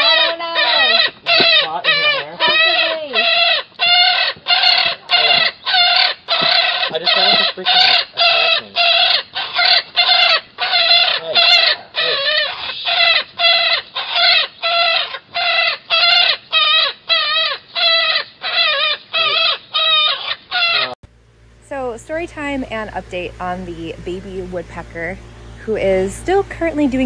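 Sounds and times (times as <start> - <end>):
baby woodpecker calling: 0.0 - 21.0.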